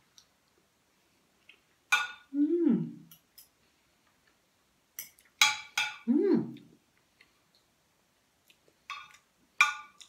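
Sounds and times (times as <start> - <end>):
woman humming while chewing: 2.3 - 3.1, 6.1 - 6.7
cutlery clinking on a plate: 5.0 - 6.1, 8.9 - 10.0.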